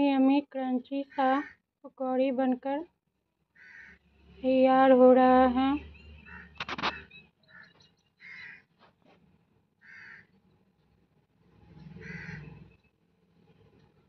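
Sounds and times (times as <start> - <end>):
crow cawing: 3.6 - 4.0, 6.2 - 8.7, 9.8 - 10.4, 12.0 - 12.5.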